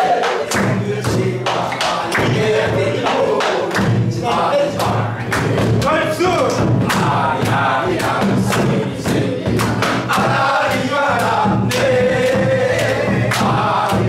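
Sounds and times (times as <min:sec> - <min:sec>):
drum strokes: 0:00.0 - 0:14.0
group singing folk song: 0:00.0 - 0:14.0
hand claps: 0:00.0 - 0:14.0.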